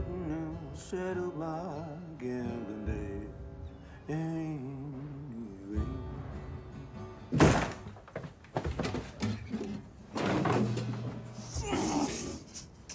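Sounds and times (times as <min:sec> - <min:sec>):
scuffling thumps and rustling: 0:07.3 - 0:11.9.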